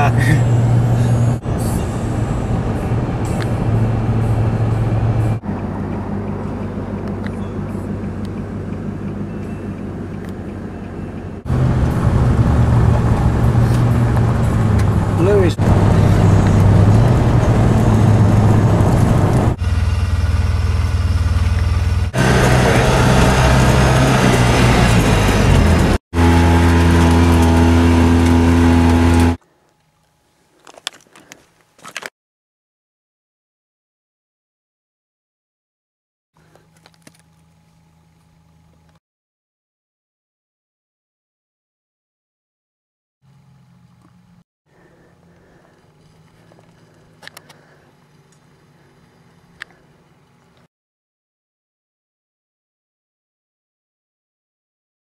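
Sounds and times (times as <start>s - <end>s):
car engine hum: 0.0s - 29.4s, 43.3s - 50.6s
tyre and road noise: 0.0s - 32.1s, 43.3s - 50.7s.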